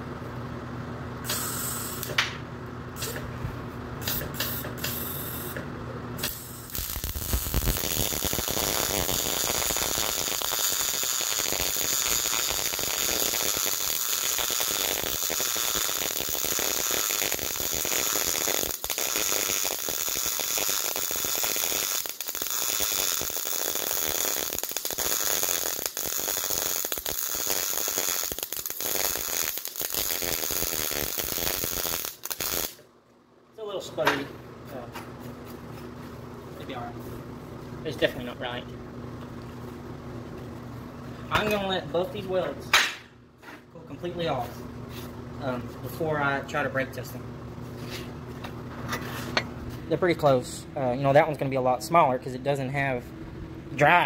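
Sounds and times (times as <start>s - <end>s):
welding arc crackling: 6.2s - 32.8s.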